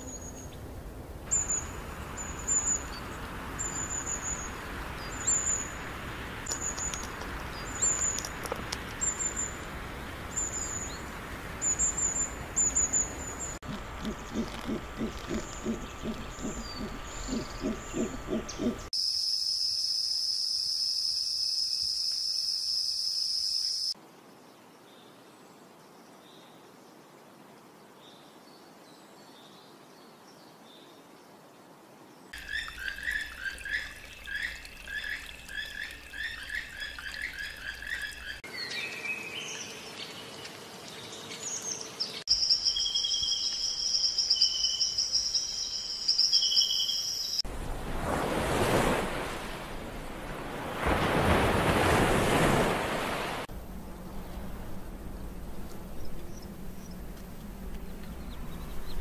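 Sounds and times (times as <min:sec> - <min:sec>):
high chirping of birds or insects: 0:01.3 - 0:27.1, 0:32.1 - 0:47.5
howler monkey calling: 0:13.7 - 0:18.9.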